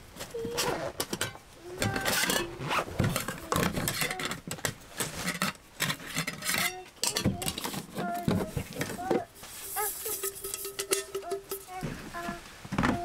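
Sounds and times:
metal pots and lids clinking: 1.0s - 12.0s.

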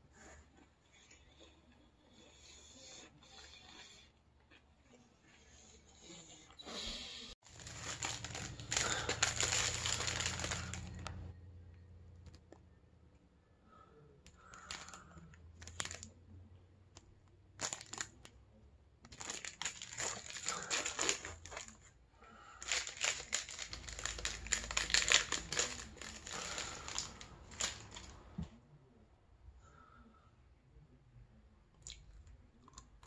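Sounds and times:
plastic wrapper crinkling and tearing: 7.4s - 11.3s, 14.4s - 16.2s, 17.6s - 18.4s, 19.0s - 21.9s, 22.6s - 28.4s.

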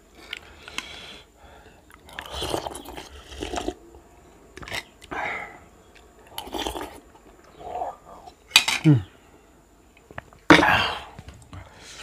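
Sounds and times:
person chewing and slurping: 1.9s - 3.8s, 6.2s - 7.1s.

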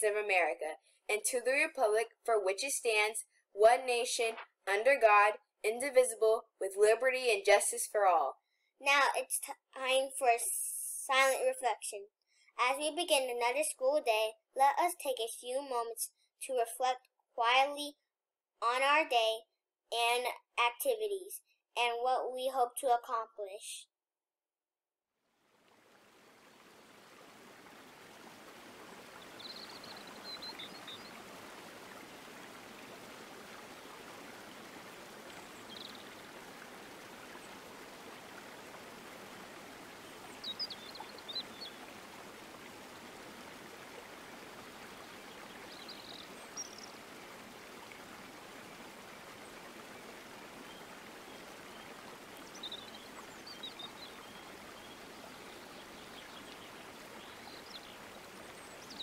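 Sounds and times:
rushing flowing water: 25.4s - 59.0s
high bird chirps: 29.2s - 31.2s, 40.4s - 41.8s.

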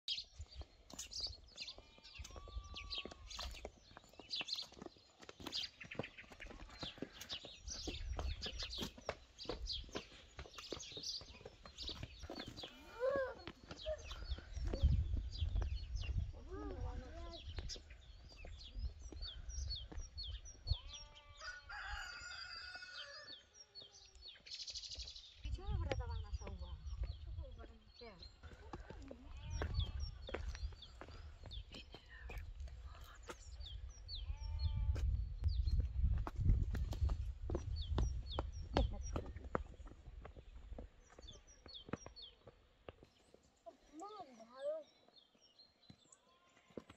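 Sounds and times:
wind rumble on microphone: 13.9s - 21.0s, 25.3s - 28.4s, 29.3s - 40.8s
rooster crowing: 21.4s - 23.4s.

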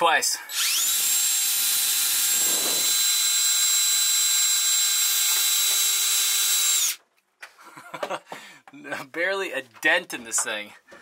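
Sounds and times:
cordless drill boring into steel: 0.5s - 7.0s.

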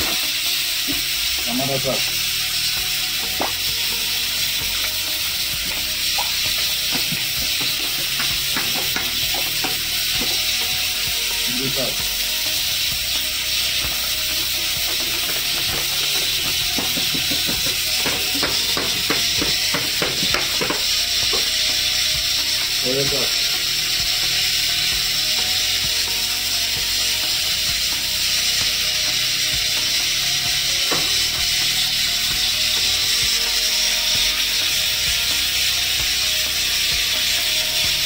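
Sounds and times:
steady hiss: 0.0s - 38.0s
person speaking: 11.4s - 12.1s.

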